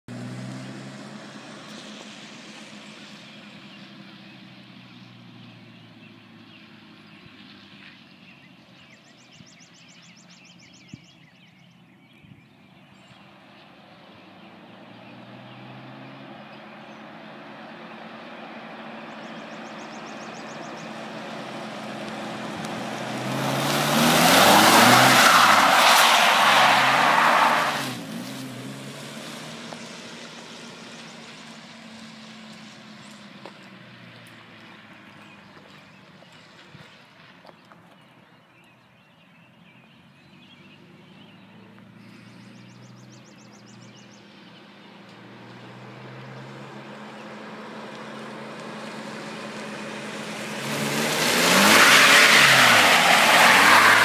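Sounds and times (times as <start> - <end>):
engine revving: 0.0 - 2.7, 20.4 - 33.2, 45.1 - 54.0
tyres sliding on asphalt: 13.2 - 38.0, 44.3 - 54.0.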